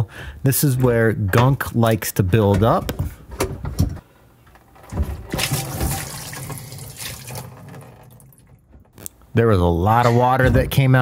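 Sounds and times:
water pouring into plastic tray: 5.2s - 8.6s.

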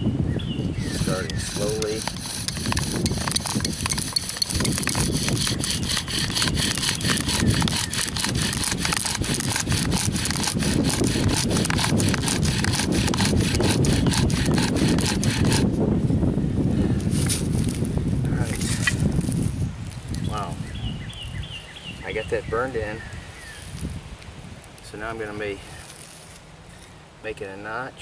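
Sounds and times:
bow drill sawing: 0.8s - 15.7s
spindle grinding on wood: 0.8s - 15.7s.

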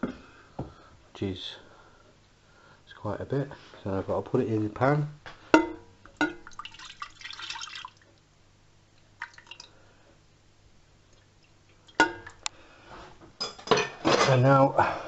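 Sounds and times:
juice splashing into pan: 6.1s - 8.3s, 9.2s - 9.8s, 11.1s - 12.5s.

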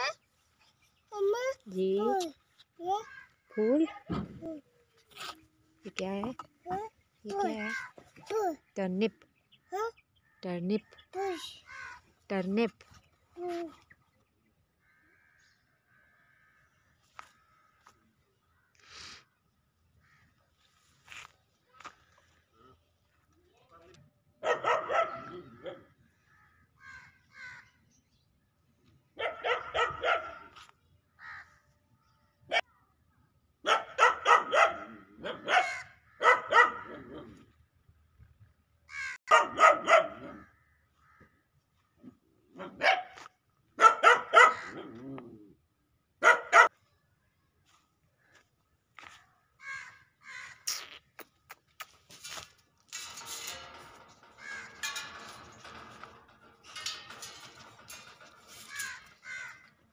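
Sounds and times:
dog barking: 24.4s - 25.9s, 29.2s - 30.6s, 33.6s - 37.2s, 39.3s - 40.4s, 42.6s - 45.1s, 46.2s - 46.8s.

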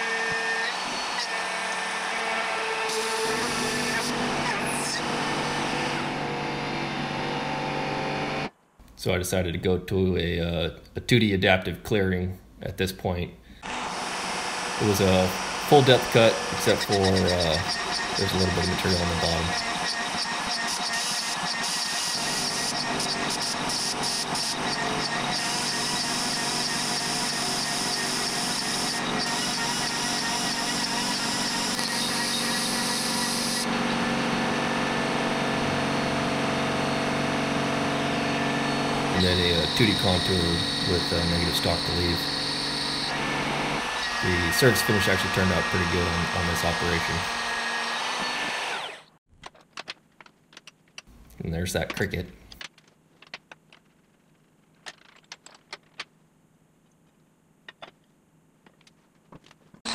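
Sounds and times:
end mill cutting aluminum: 0.0s - 8.5s, 13.6s - 49.2s
router spindle running: 0.0s - 8.5s, 13.6s - 49.2s.

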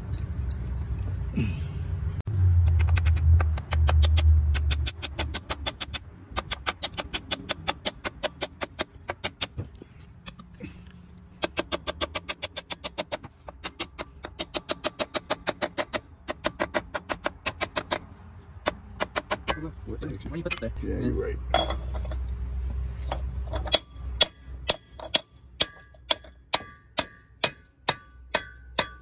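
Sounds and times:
hammer tapping metal: 18.6s - 20.6s, 23.5s - 29.0s.

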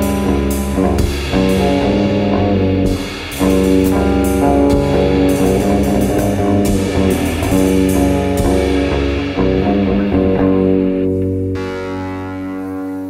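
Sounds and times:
cymbal strikes: 0.0s - 13.0s
rock music with guitar and bass: 0.0s - 13.0s.

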